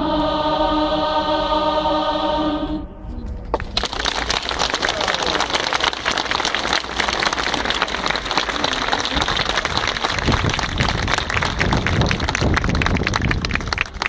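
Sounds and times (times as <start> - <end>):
crowd applauding: 3.5 - 14.0.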